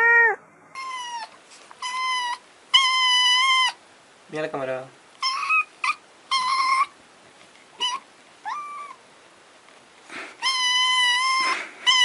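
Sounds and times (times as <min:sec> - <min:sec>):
kitten meowing: 0:00.0 - 0:03.8, 0:07.8 - 0:09.0.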